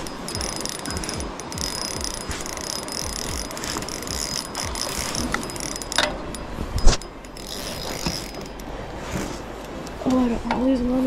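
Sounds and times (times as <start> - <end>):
fishing reel ratcheting whir: 0.0 - 8.8.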